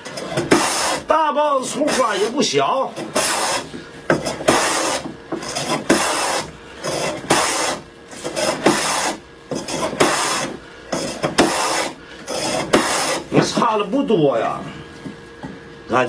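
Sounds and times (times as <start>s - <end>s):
hand plane rasping on wood: 0.0s - 1.1s, 1.7s - 13.4s.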